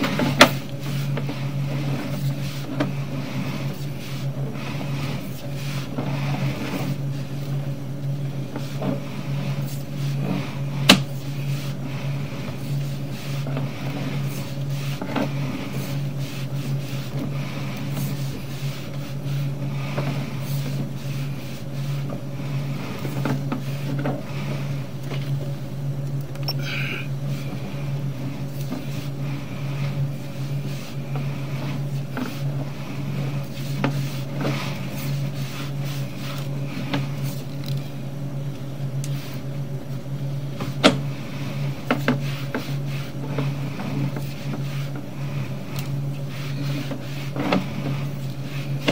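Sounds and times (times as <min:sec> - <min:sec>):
low machine hum: 0:00.0 - 0:48.9
brief squeak: 0:26.4 - 0:26.7.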